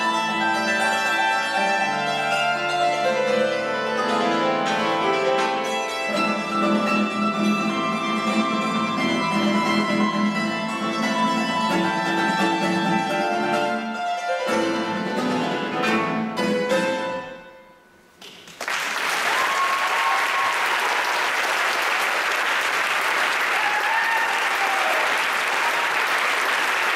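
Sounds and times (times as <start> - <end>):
hammered dulcimer: 0.0 - 17.6
classical guitar: 0.0 - 18.1
audience applauding: 18.2 - 26.9.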